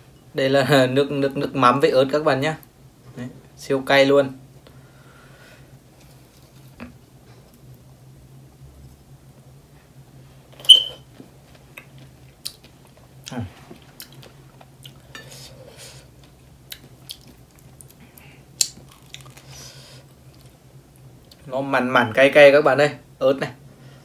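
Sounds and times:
chewing strawberry: 16.2 - 18.0, 18.6 - 19.6.

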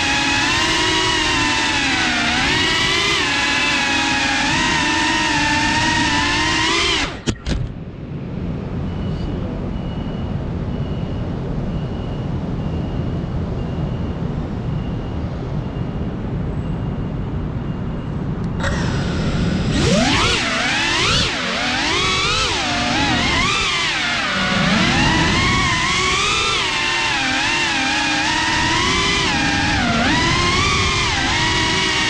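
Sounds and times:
drone motors whining: 0.0 - 7.9, 18.4 - 32.0.

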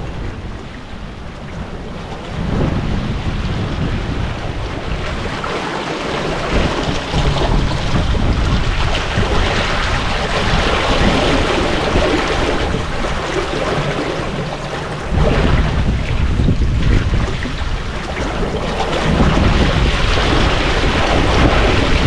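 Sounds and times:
water rushing past a hull: 0.0 - 22.0
wind buffeting microphone: 0.0 - 22.0.

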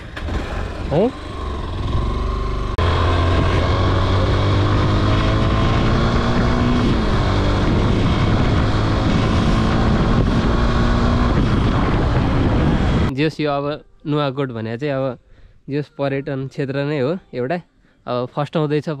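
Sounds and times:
motorcycle engine running: 0.0 - 13.1.

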